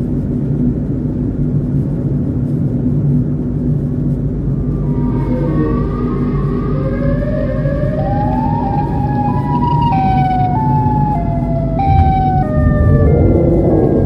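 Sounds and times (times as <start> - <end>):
car driving rumble: 0.0 - 14.0
siren wailing: 4.4 - 14.0.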